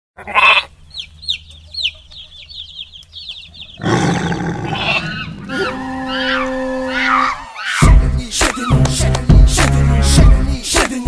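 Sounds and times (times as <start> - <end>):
bird squawk: 0.2 - 8.8
dense bird calls: 0.2 - 9.4
high falling chirps: 0.8 - 8.8.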